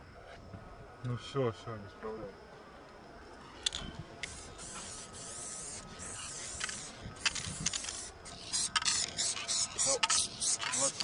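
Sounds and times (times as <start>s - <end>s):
aerosol spray can hissing: 4.2s - 11.0s.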